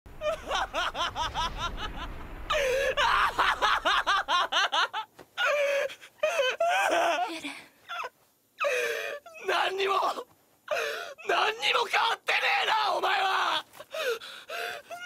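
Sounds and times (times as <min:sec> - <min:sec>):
person laughing: 0:00.2 - 0:05.1.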